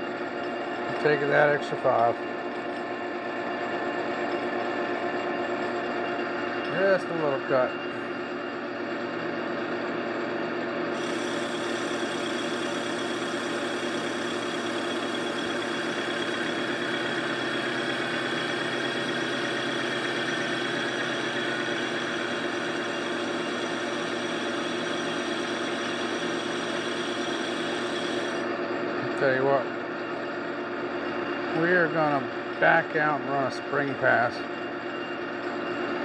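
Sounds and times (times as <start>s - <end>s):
lathe motor and gear hum: 0.0s - 36.0s
lathe tool cutting hiss: 10.9s - 28.5s.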